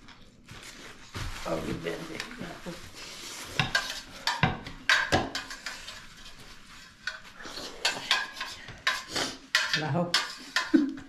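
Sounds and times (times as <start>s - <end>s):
spoon clinking on steel plates: 3.6s - 6.0s, 7.0s - 10.8s
slurping: 7.3s - 9.5s.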